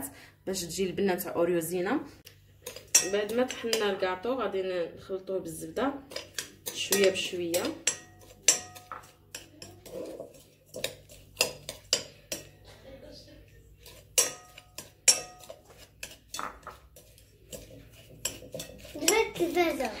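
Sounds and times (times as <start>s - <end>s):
metal spoon clinking in glass bowl: 2.6s - 4.0s, 6.1s - 12.6s, 13.8s - 19.4s.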